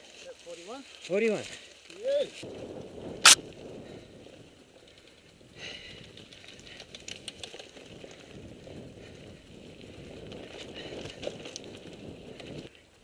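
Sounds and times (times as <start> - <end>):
bike tyres rumbling on gravel: 2.4 - 12.8
bike rattles and clicks: 2.5 - 13.0.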